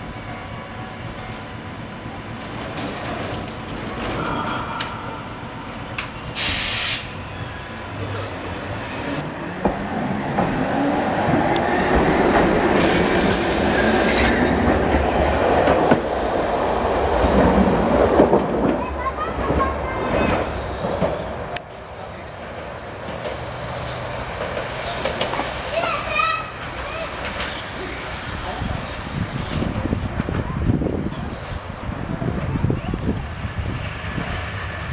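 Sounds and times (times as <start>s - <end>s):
tram motors whining: 0.0s - 16.3s
air hiss burst: 5.2s - 7.2s.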